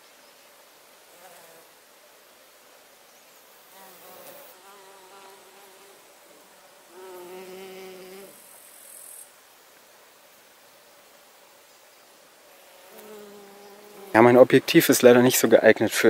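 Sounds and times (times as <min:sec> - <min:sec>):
honeybee buzzing: 0:03.7 - 0:09.0, 0:12.5 - 0:14.6.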